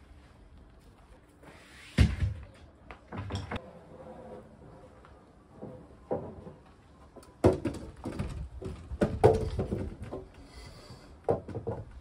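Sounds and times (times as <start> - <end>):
wooden planks knocking: 7.4 - 10.3, 11.3 - 12.0.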